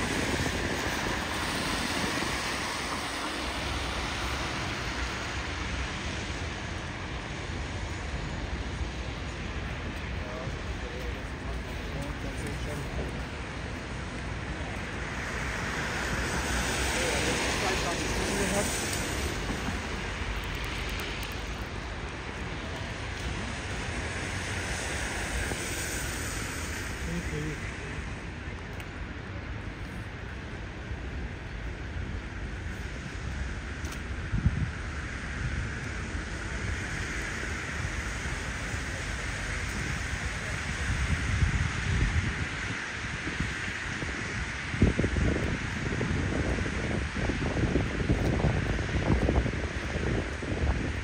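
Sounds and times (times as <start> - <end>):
wind on microphone: 0.0 - 7.4, 31.2 - 51.0
constant rushing noise: 0.0 - 51.0
road traffic hum: 0.0 - 51.0.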